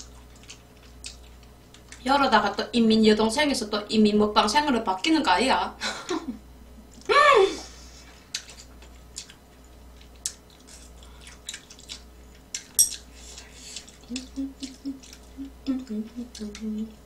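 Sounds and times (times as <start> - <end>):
person humming while chewing: 13.0 - 17.0.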